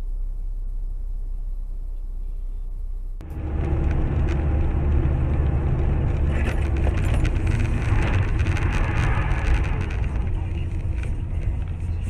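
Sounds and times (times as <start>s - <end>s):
car engine and road rumble: 0.0s - 12.0s
light clicks and rattles: 3.3s - 12.0s.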